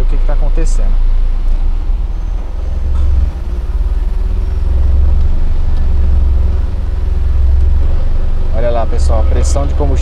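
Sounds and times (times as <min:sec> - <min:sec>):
car engine idling under load: 0:00.0 - 0:10.0.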